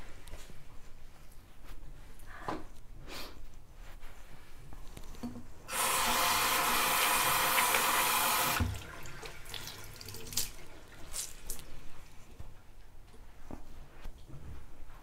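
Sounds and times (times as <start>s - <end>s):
tap running into sink: 5.2s - 10.6s
splashes and drips: 8.5s - 11.7s.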